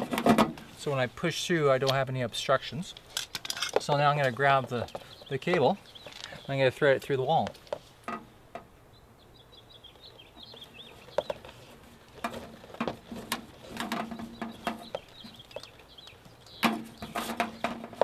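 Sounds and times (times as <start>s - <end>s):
cable clicking and rustling on siding: 0.0s - 8.8s, 9.8s - 18.0s
small birds chirping: 3.7s - 18.0s.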